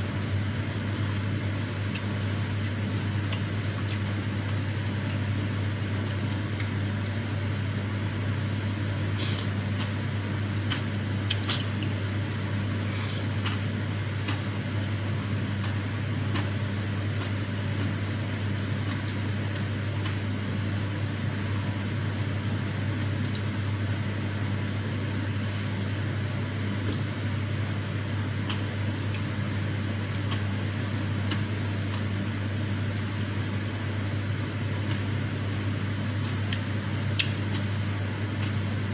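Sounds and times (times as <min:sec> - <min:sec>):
steady low hum: 0:00.0 - 0:38.9
clicks and smacks of eating: 0:00.1 - 0:07.2, 0:09.2 - 0:10.0, 0:10.6 - 0:12.2, 0:13.2 - 0:14.5, 0:15.5 - 0:20.3, 0:22.5 - 0:25.1, 0:26.7 - 0:27.1, 0:28.4 - 0:32.2, 0:32.8 - 0:33.9, 0:34.8 - 0:37.8, 0:38.4 - 0:38.6.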